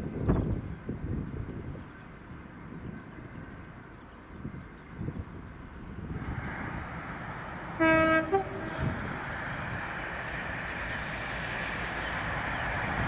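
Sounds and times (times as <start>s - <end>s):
train rumble: 0.0s - 13.0s
train horn: 7.8s - 9.0s.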